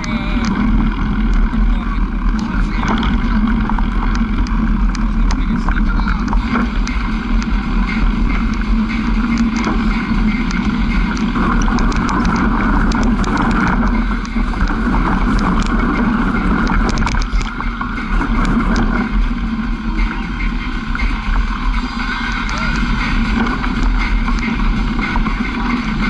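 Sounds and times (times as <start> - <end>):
rattling clicks from bumpy ride: 0.0 - 26.0
vehicle engine running: 0.0 - 26.0.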